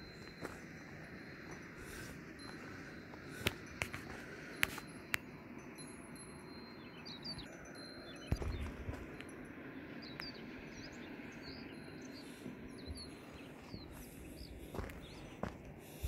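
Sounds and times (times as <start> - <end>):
outdoor background rush: 0.0 - 16.0.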